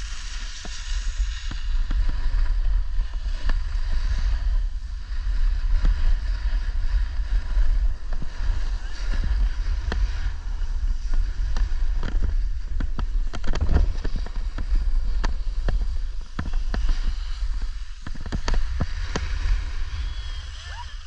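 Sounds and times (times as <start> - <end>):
ski edges scraping snow: 0.0 - 21.0
wind rumbling on microphone: 0.0 - 21.0.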